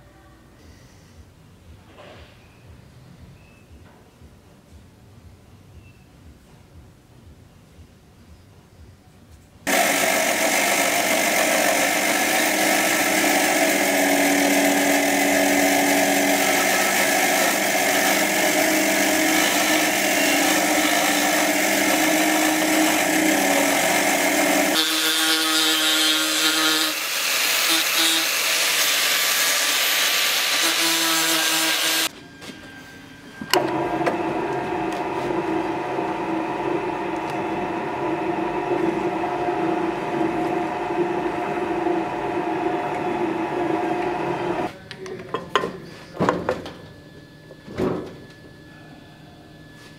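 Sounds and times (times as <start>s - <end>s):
band saw cutting wood: 9.7s - 32.1s
drill press boring into wood: 9.7s - 32.1s.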